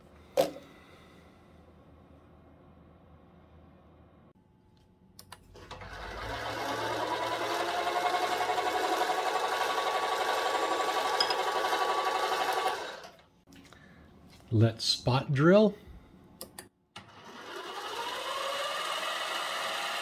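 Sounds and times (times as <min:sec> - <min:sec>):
lathe whining: 0:05.6 - 0:13.2, 0:17.0 - 0:20.0.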